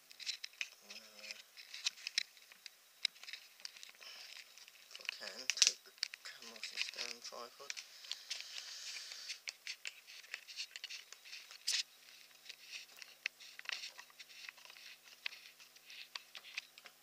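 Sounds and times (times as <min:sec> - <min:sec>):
camera handling clicks and rustles: 0:00.1 - 0:08.4.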